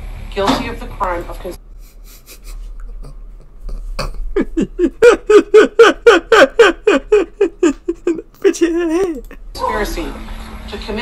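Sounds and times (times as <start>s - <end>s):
man laughing hard: 1.8s - 9.4s.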